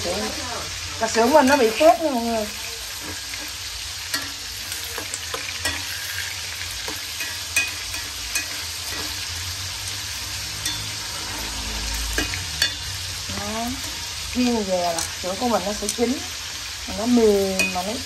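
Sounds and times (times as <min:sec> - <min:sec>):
sausage sizzling in oil: 0:00.0 - 0:18.0
metal tongs clicking on pot: 0:04.1 - 0:09.2, 0:17.5 - 0:18.0.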